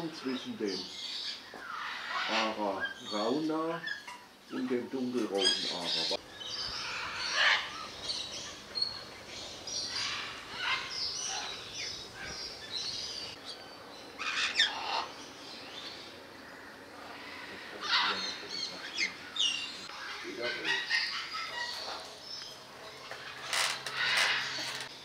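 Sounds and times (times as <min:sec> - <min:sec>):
parrots screeching: 0:01.1 - 0:04.2, 0:05.4 - 0:09.1, 0:09.8 - 0:13.3, 0:14.2 - 0:15.2, 0:17.0 - 0:22.1, 0:23.1 - 0:24.9
high parrot chirps: 0:09.8 - 0:13.3.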